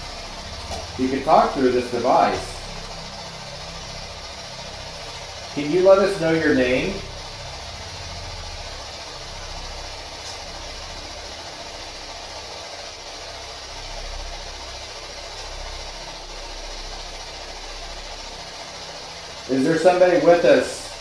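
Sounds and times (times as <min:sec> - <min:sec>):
radio static hiss: 0:00.0 - 0:14.6
low rumble: 0:00.0 - 0:19.5.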